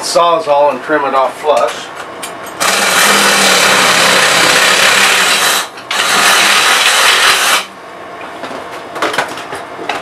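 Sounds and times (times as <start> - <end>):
reciprocating saw cutting wood: 2.6 - 7.7.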